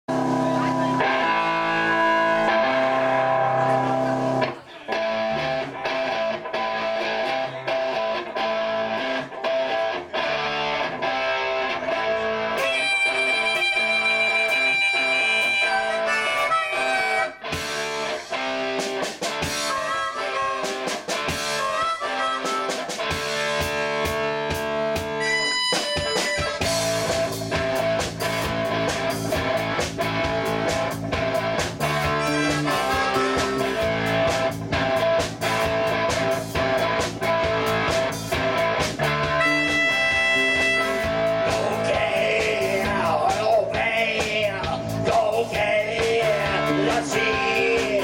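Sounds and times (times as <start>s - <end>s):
blues band playing: 0.1s - 48.0s
harmonica: 12.6s - 17.8s, 19.4s - 23.7s, 25.0s - 27.4s, 31.9s - 34.6s, 39.1s - 43.1s.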